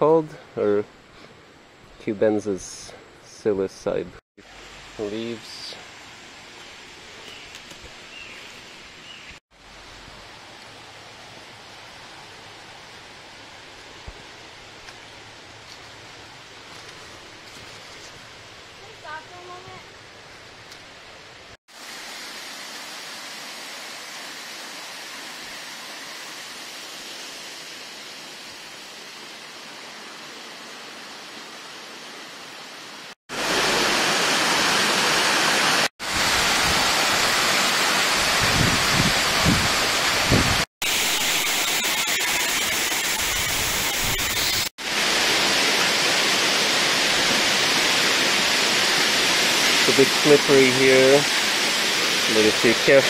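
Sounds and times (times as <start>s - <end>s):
waterfall rushing: 21.7s - 53.0s.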